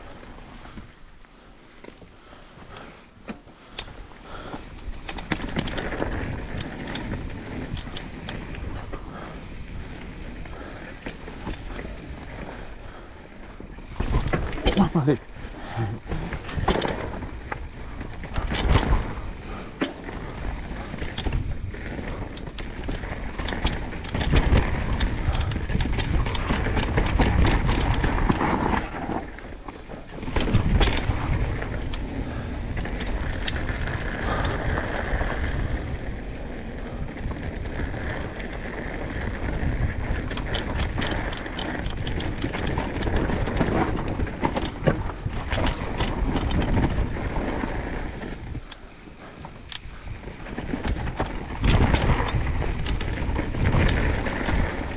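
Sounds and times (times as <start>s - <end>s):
tyres rumbling on dirt trail: 0.0s - 54.9s
bike knocking and clattering: 1.8s - 54.9s
wind on microphone: 30.2s - 54.9s.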